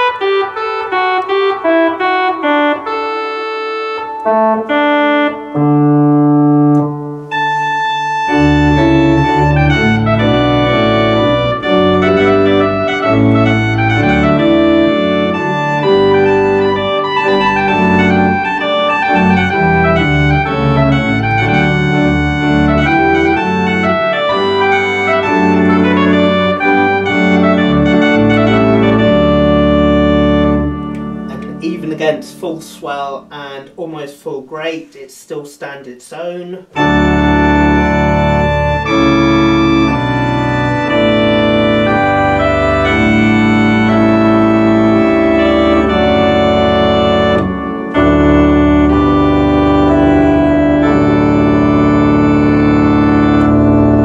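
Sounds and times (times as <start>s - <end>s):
full organ chords: 0.0s - 35.0s, 36.4s - 54.0s
organ reed solo melody: 0.0s - 35.0s, 36.6s - 54.0s
deep pedal bass: 7.7s - 32.8s, 36.8s - 54.0s.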